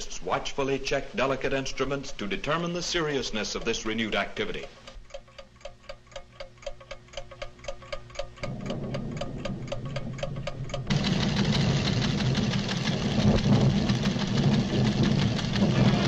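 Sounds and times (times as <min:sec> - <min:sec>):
seismograph ticking: 0:00.0 - 0:16.0
deep rumble: 0:08.3 - 0:16.0.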